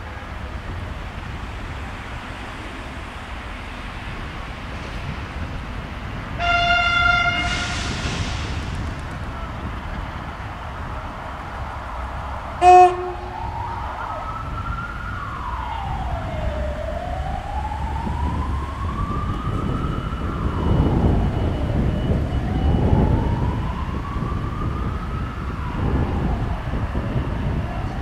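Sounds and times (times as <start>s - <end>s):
emergency siren wailing: 6.3s - 8.3s, 10.5s - 28.0s
horn blast: 6.4s - 8.0s, 12.6s - 13.5s.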